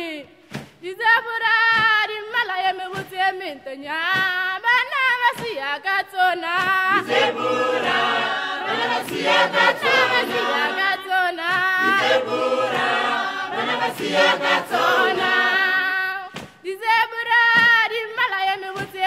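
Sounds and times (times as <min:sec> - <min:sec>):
choir singing: 0:06.8 - 0:16.3.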